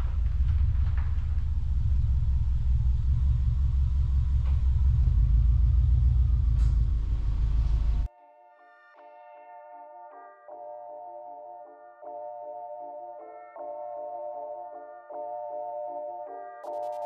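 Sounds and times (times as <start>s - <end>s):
car engine exhaust rumble: 0.0s - 8.1s.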